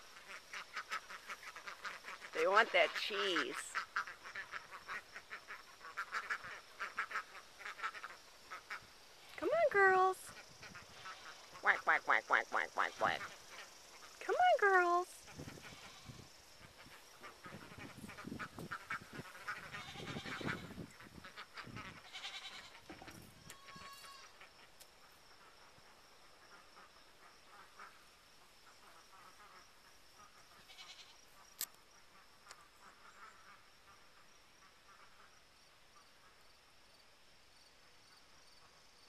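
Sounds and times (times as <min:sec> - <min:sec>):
faint insect buzz: 0:00.0 - 0:39.0
ducks quacking: 0:00.1 - 0:08.9, 0:16.7 - 0:24.5.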